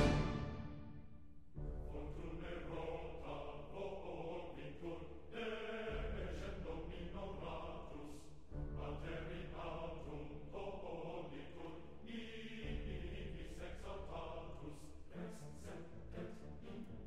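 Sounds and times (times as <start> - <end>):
choir-like chanting voices: 0.0 - 1.1, 1.8 - 17.0.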